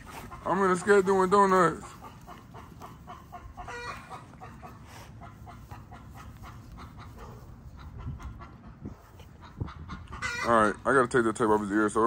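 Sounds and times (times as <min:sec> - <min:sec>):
chicken clucking: 0:00.0 - 0:10.8
chicken high call: 0:02.3 - 0:05.9.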